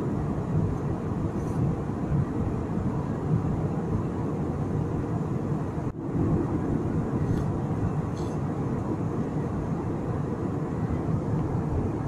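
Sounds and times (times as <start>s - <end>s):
jet engines rumbling: 0.0s - 12.0s.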